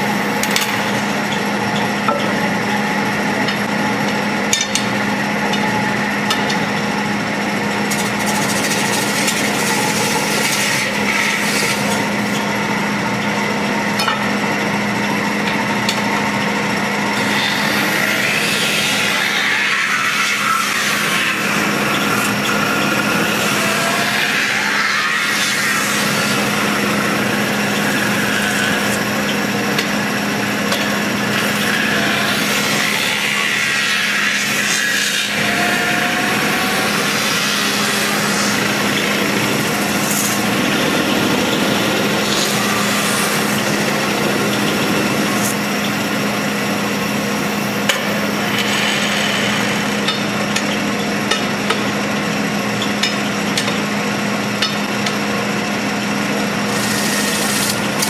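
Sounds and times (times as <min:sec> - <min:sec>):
tool scraping spinning sheet metal: 0:00.0 - 0:12.7, 0:17.1 - 0:50.7, 0:56.7 - 0:58.0
lathe humming: 0:00.0 - 0:58.0.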